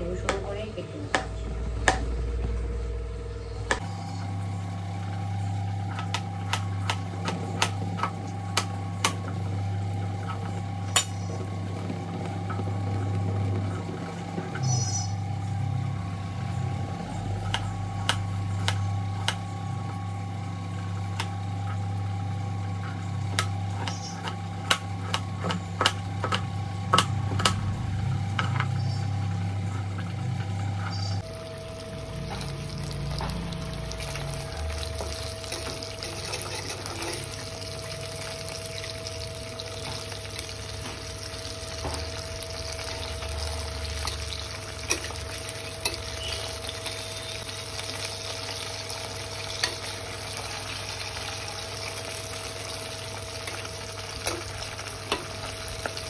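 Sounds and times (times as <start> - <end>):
steady hum: 0.0 - 56.0
fish sizzling in oil: 31.0 - 56.0.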